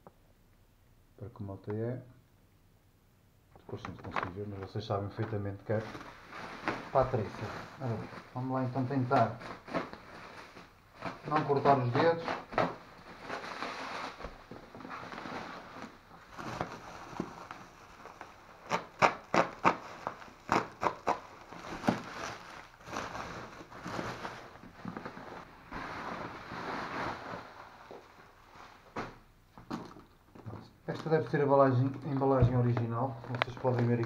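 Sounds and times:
bubble wrap crinkling: 5.2s - 30.0s, 30.8s - 34.0s
bubble wrap sharp crackles: 5.7s - 29.1s.

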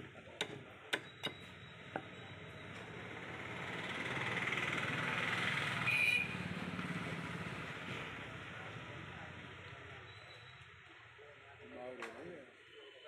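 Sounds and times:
vehicle passing: 2.9s - 9.6s.

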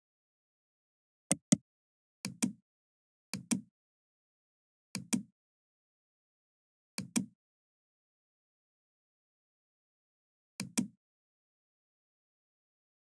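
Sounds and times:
mouse button clicking: 1.3s - 1.6s.

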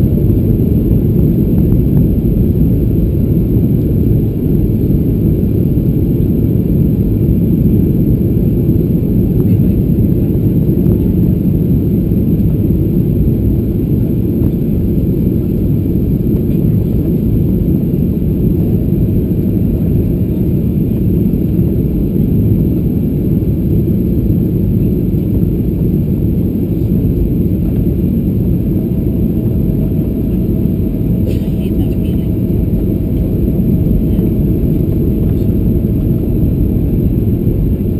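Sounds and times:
airplane cabin engine rumble: 0.0s - 37.9s.

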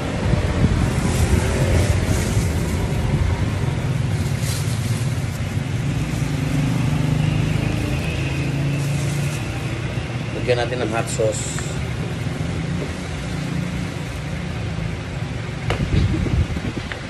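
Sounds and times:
low rumble of vehicle engines: 0.0s - 17.0s
plastic bag crinkling: 0.9s - 6.6s.

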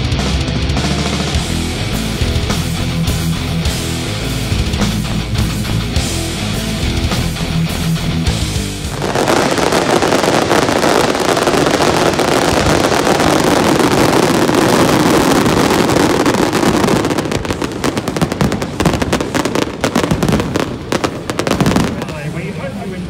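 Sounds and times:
fireworks crackling: 0.9s - 23.0s
fireworks popping: 8.9s - 23.0s.

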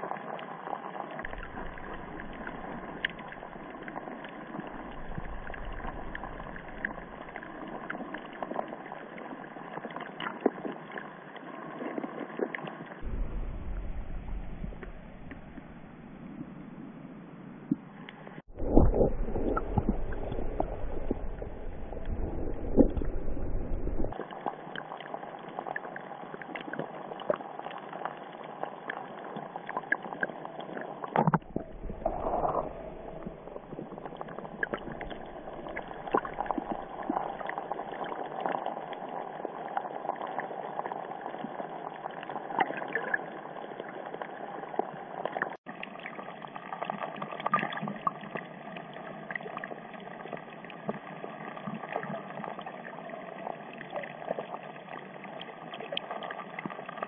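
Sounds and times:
underwater water noise: 0.0s - 57.0s
faint crackling clicks: 1.2s - 13.0s, 25.8s - 41.5s.

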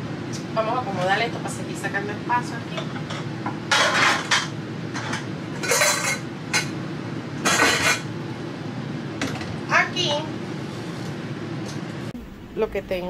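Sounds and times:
steady low hum: 0.0s - 13.0s
pans and pot clattering: 2.8s - 6.8s, 7.4s - 8.1s.

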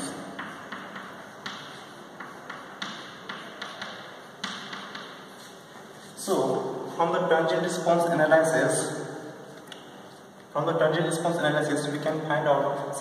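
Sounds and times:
chalk writing on a blackboard: 0.0s - 6.2s.

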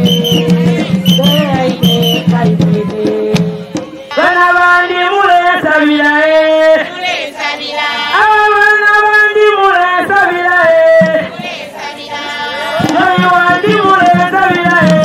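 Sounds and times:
drumming: 0.0s - 4.2s, 10.6s - 11.9s, 12.6s - 15.0s
woman singing into microphone: 0.4s - 7.3s.

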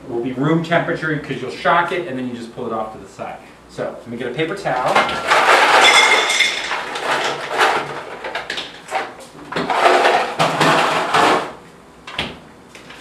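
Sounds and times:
ice cubes clattering into glass bowl: 5.1s - 8.4s.

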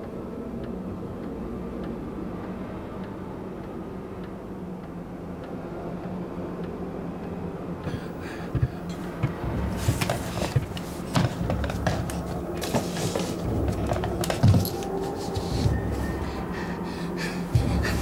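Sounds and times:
low rumbling drone: 0.0s - 18.0s
knocks and clicks: 8.5s - 15.9s.

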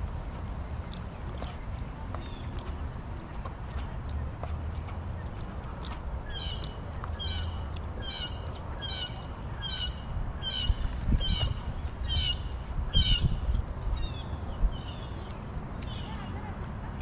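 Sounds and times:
bird calling harshly: 6.3s - 13.4s
low rumble: 9.9s - 13.6s
low bumps: 10.0s - 14.9s.

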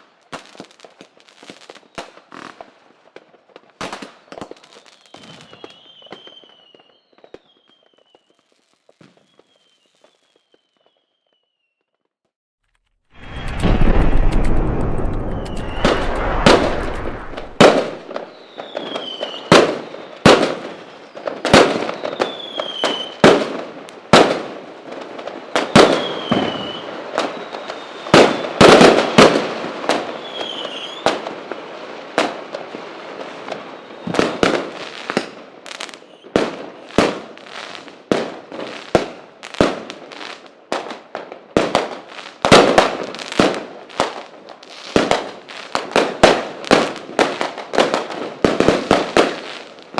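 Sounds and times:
fireworks bangs with crackling: 0.0s - 12.2s, 13.1s - 49.9s
falling whistles: 4.8s - 8.4s, 9.1s - 11.9s, 15.1s - 20.1s, 25.8s - 28.6s.

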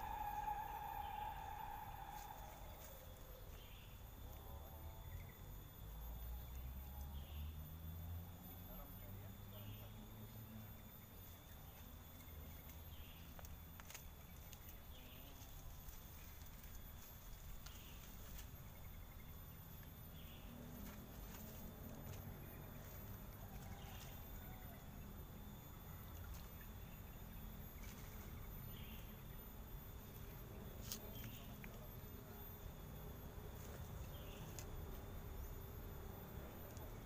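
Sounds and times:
low rumble: 0.0s - 3.4s
short soft calls: 0.0s - 3.6s
high-pitched insect drone: 0.0s - 13.9s.

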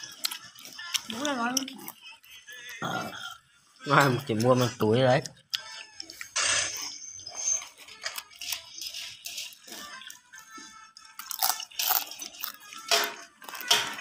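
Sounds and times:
hand stirring crunchy snacks: 0.0s - 3.0s, 7.5s - 14.0s.

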